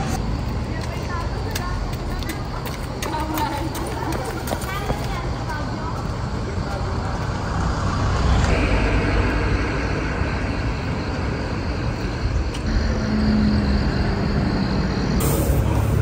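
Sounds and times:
traffic rumble: 0.0 - 16.0.

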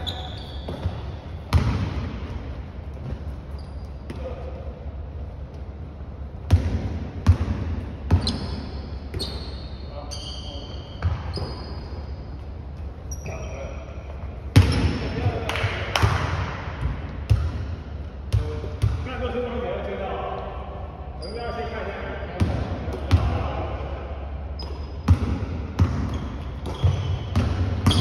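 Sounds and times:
sneakers squeaking: 0.0 - 19.0, 21.1 - 23.4, 24.4 - 28.0
basketball bouncing on wooden floor: 0.6 - 2.3, 25.1 - 28.0.

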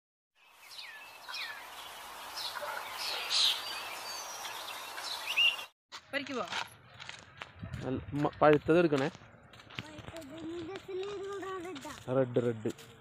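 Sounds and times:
birds chirping and calling: 0.4 - 5.7
outdoor ambient hiss: 0.4 - 5.7.

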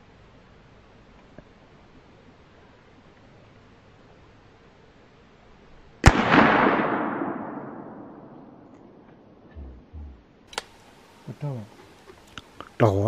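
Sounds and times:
gunshot with echo: 6.0 - 9.0.

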